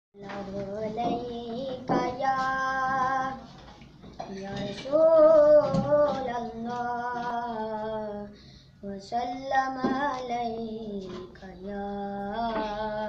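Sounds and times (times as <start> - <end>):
boy singing devotional hymn: 0.2 - 13.0.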